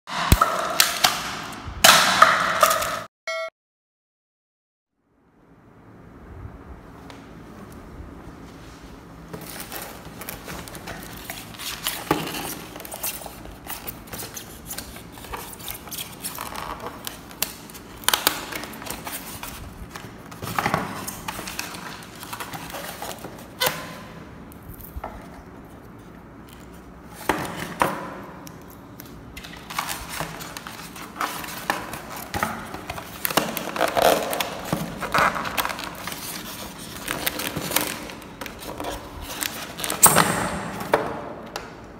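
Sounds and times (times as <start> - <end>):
foam tray crackling and clicking: 9.4 - 23.4, 26.5 - 40.0.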